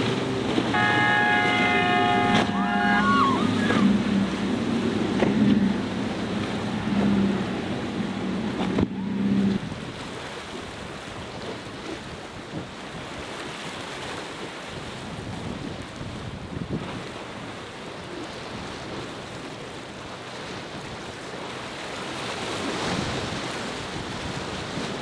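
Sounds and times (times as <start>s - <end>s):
outboard engines droning: 0.0s - 25.0s
waves and spray rushing: 0.0s - 25.0s
wind noise on microphone: 14.7s - 17.5s.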